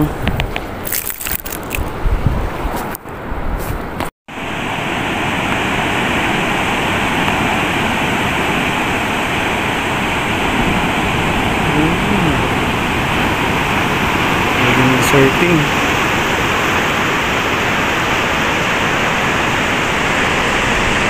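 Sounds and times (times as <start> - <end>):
wind: 0.0 - 21.0
ocean surf rushing: 1.3 - 21.0
waves breaking on reef: 4.3 - 21.0.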